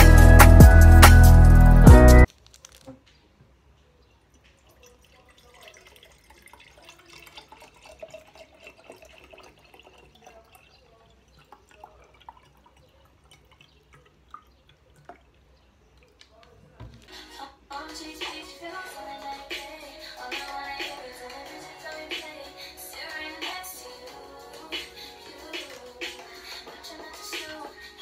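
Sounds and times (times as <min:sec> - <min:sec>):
water dripping and trickling: 0:03.7 - 0:17.1.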